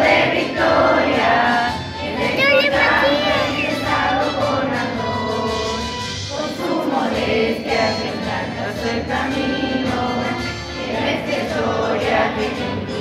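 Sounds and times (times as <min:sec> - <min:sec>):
choir singing a hymn: 0:00.0 - 0:13.0.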